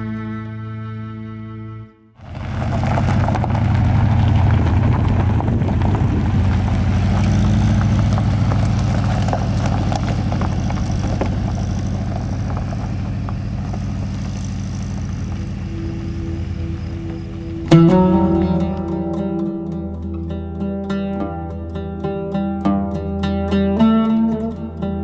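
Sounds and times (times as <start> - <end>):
tyres crackling over stones: 2.2 - 19.4
car engine driving by: 2.2 - 20.4.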